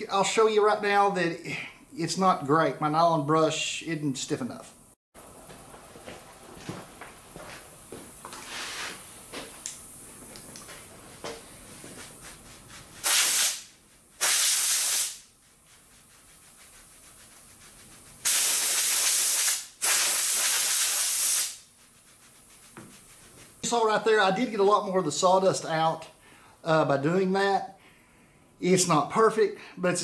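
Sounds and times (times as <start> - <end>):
paintbrush bristles scrubbing: 11.0 - 19.6, 20.2 - 24.0
compressed air blow gun bursts: 12.3 - 15.3, 17.8 - 23.6.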